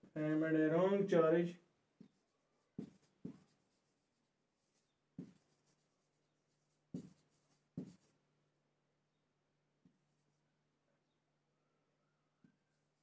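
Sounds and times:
marker pen writing on whiteboard: 2.0 - 8.2
marker pen taps: 2.8 - 3.5, 5.2 - 5.4, 7.0 - 7.2, 7.8 - 8.1.

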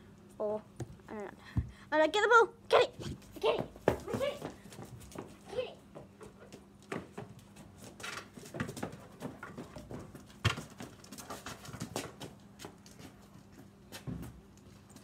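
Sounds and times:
paws and ball scuffing on concrete: 3.0 - 15.0.

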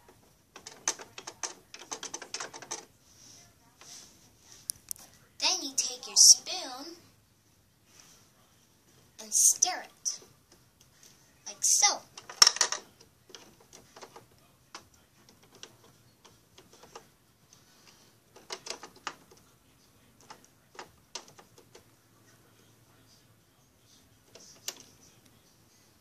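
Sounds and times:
plastic toy clicks and taps: 0.6 - 2.9, 12.2 - 12.8.

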